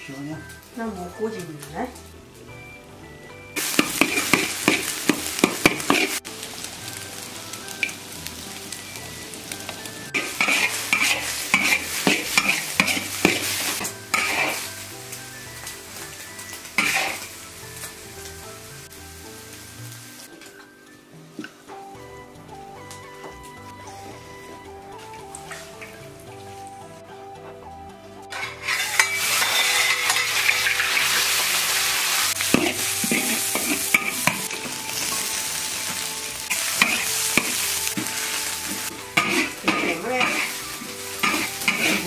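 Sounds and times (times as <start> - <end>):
eggs sizzling in hot oil: 0.0 - 27.0, 28.2 - 42.0
metal ladle scraping a wok: 3.8 - 6.3, 10.2 - 14.8, 16.8 - 17.3, 28.3 - 35.3, 36.5 - 42.0.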